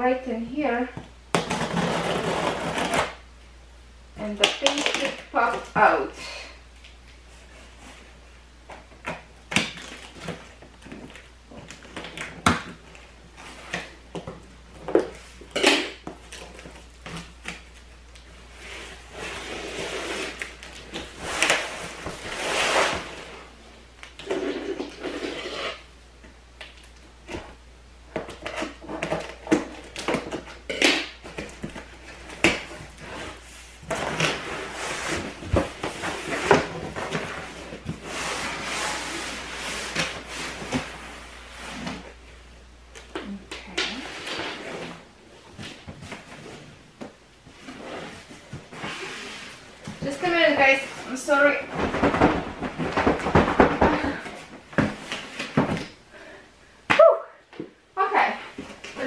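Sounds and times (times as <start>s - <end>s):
cardboard scraping and rustling: 1.4s - 3.2s, 18.5s - 23.5s, 31.2s - 42.2s, 47.5s - 55.9s.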